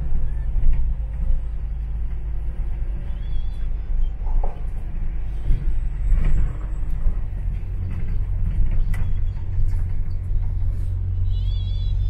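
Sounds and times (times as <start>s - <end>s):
bus engine rumble: 0.0s - 12.0s
faint high squeal: 2.9s - 4.4s, 8.1s - 12.0s.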